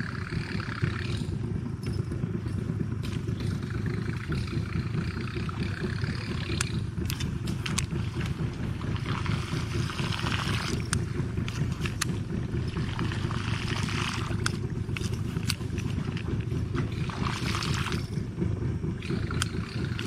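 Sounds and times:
boat engine rumbling: 0.0s - 20.0s
sharp clicks: 6.5s - 8.4s.

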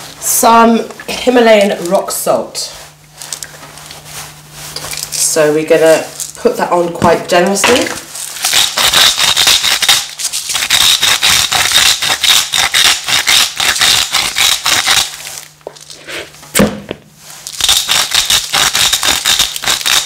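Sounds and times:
salt grinder crunching: 8.2s - 16.2s, 17.4s - 20.0s
sharp knock: 16.5s - 17.0s.

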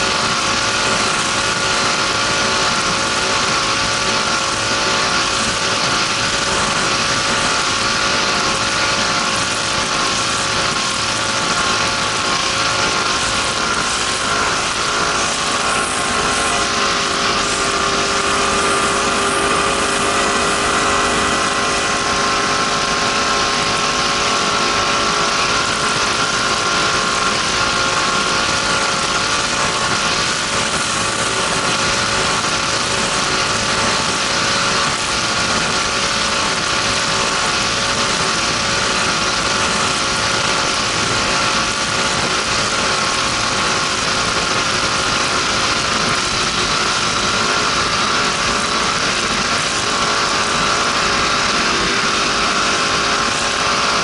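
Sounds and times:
broad rush of noise: 0.0s - 54.0s
powerboat engine running: 0.0s - 54.0s.

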